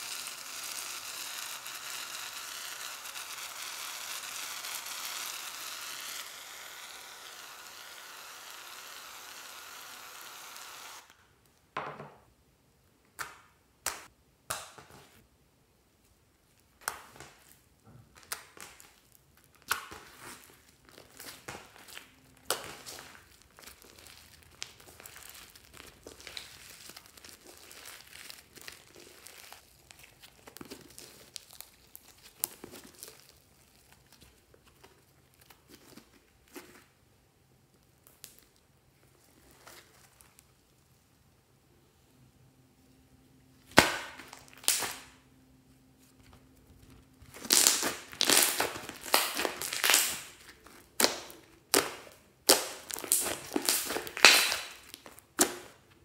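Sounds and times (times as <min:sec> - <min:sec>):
slime crackling and squishing: 0:18.2 - 0:36.9, 0:46.6 - 0:56.0.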